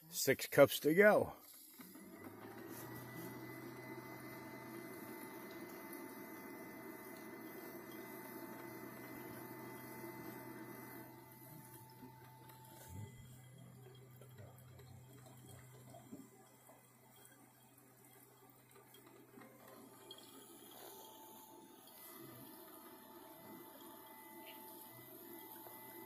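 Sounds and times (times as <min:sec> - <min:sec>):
coffee maker gurgling and dripping: 0:01.3 - 0:26.0
low steady hum: 0:08.9 - 0:18.8.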